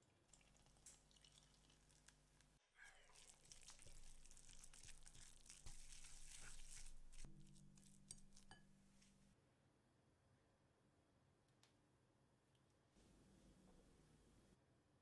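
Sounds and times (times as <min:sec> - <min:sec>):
whisk scraping paste in bowl: 0:03.7 - 0:08.6.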